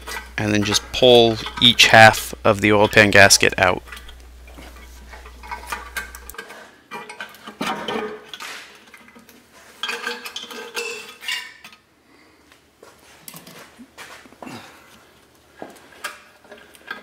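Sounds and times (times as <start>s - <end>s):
low steady hum: 0.0s - 6.5s
metallic clinks and scraping: 3.8s - 7.4s, 9.8s - 11.8s.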